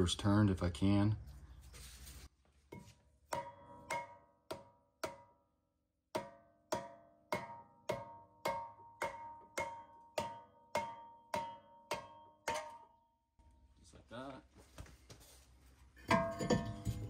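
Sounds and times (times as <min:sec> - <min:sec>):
mallet striking ringing brake rotor: 0:06.2 - 0:13.0, 0:16.1 - 0:17.0.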